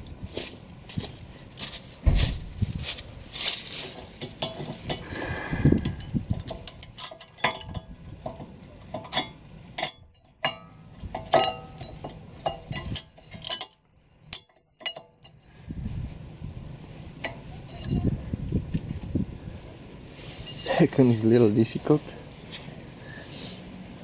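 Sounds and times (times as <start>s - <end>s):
metal scraping: 2.2s - 15.6s, 16.8s - 18.2s.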